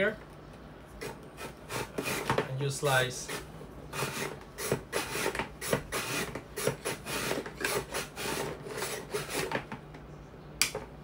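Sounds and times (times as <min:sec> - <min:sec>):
carrot rasping on a mandoline: 0:01.0 - 0:02.4, 0:03.2 - 0:09.6.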